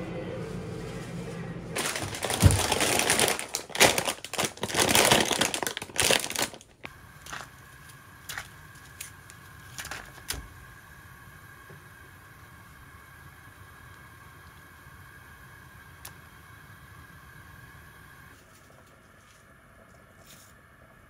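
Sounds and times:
plastic package crinkling: 0:01.8 - 0:10.4.

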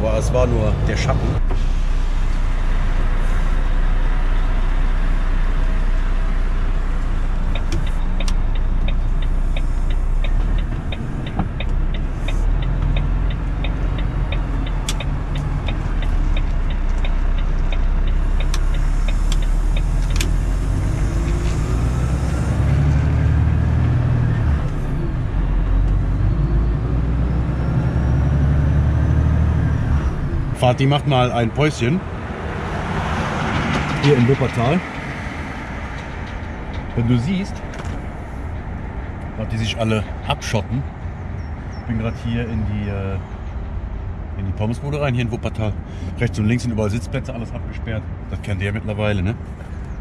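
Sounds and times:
truck engine running: 0:00.0 - 0:40.3
turn signal ticking: 0:06.8 - 0:24.8.

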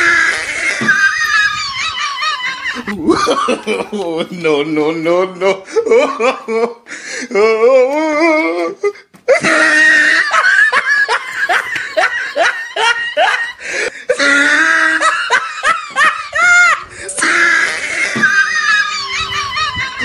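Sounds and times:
people laughing loudly: 0:00.0 - 0:06.9, 0:08.8 - 0:20.0
giggles: 0:00.3 - 0:04.4, 0:08.8 - 0:20.0.

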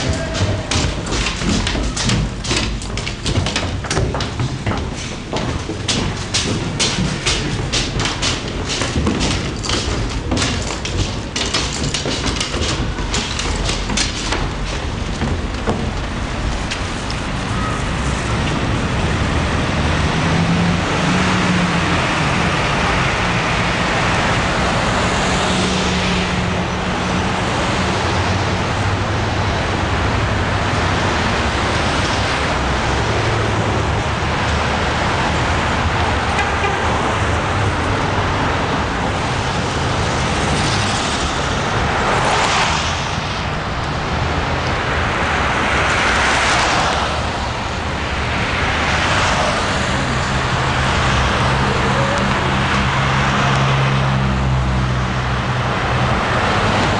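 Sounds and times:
footsteps on concrete stairs: 0:00.0 - 0:19.7, 0:32.4 - 0:44.1
cars and trucks passing: 0:00.0 - 0:56.9
vehicle engine hum: 0:00.0 - 0:56.9.

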